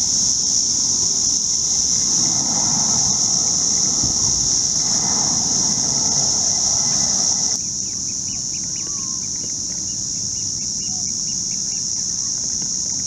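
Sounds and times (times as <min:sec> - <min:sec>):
low rushing noise: 0:00.6 - 0:07.6
high-pitched drone: 0:00.8 - 0:07.6.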